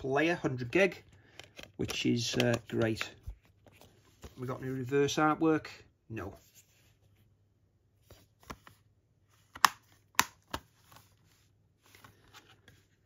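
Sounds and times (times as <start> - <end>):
plastic case clicks and taps: 1.4 - 3.0, 9.5 - 10.7.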